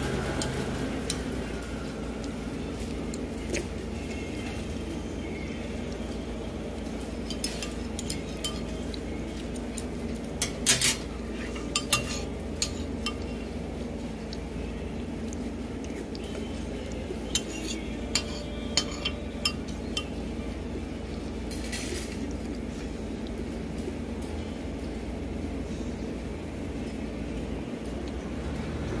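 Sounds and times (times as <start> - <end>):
low background hum: 0.0 - 29.0
dishes and cutlery clinking: 7.0 - 13.5, 17.3 - 20.2.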